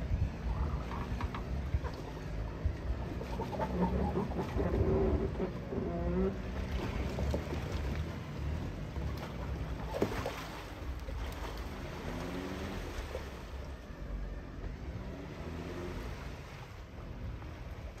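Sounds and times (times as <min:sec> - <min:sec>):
off-road vehicle engines rumbling: 0:00.0 - 0:18.0.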